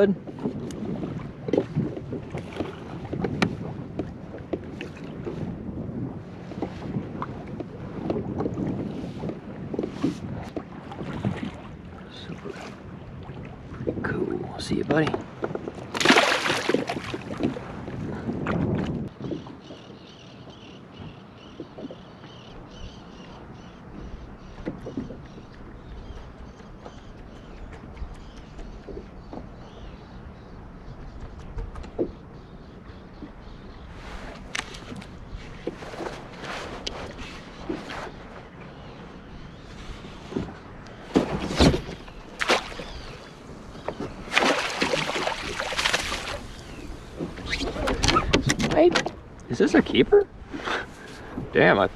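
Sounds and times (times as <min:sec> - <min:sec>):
water lapping against hull: 0:00.0 - 0:51.9
fish splashing in water: 0:15.9 - 0:17.6, 0:41.1 - 0:43.4, 0:44.1 - 0:48.4.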